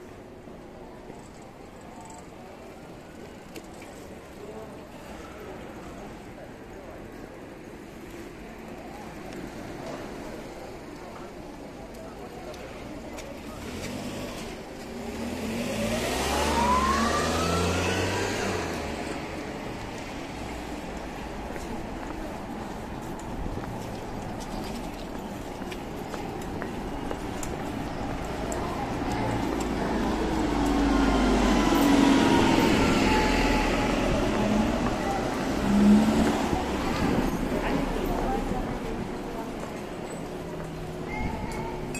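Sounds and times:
vehicle engine rumble accelerating: 0:13.4 - 0:20.9, 0:27.0 - 0:41.0.

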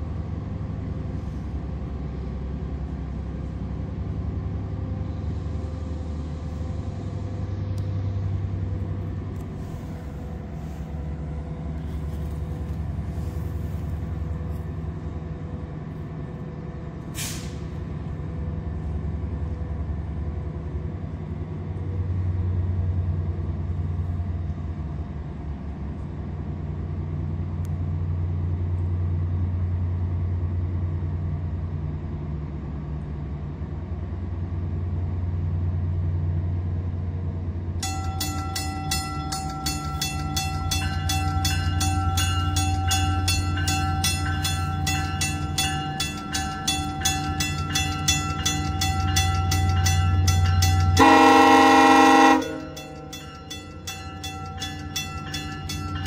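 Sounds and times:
diesel locomotive idling: 0:00.0 - 0:56.0
locomotive bell ringing: 0:37.8 - 0:56.0
train horn blast: 0:50.7 - 0:53.0.

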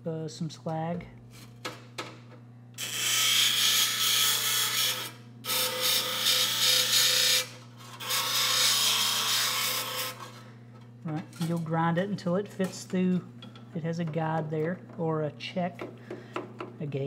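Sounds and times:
grinding wheel grinding metal: 0:02.8 - 0:10.4.

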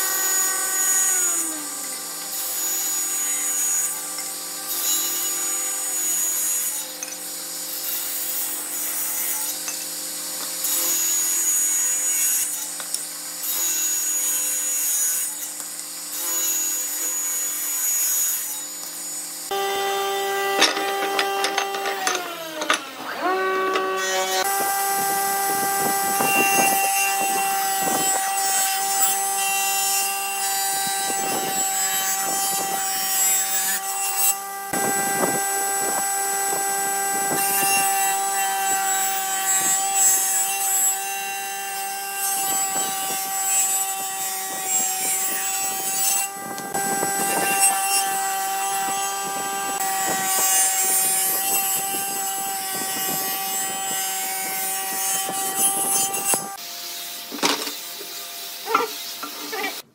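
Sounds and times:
table saw motor whine: 0:00.0 - 0:15.4, 0:16.2 - 0:59.8
saw blade ripping wood: 0:19.5 - 0:56.6.

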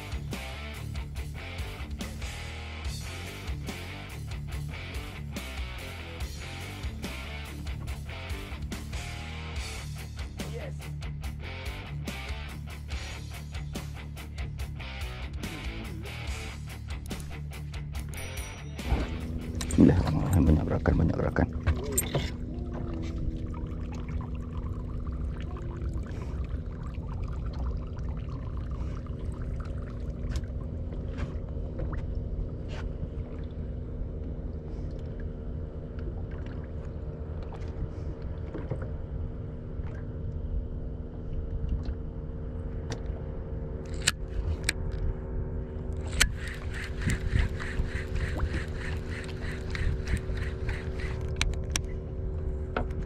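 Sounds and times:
water around a hull: 0:00.0 - 0:11.9, 0:15.4 - 0:53.0
boat motor running: 0:00.0 - 0:53.0
small clicks and ticks: 0:45.9 - 0:51.9.

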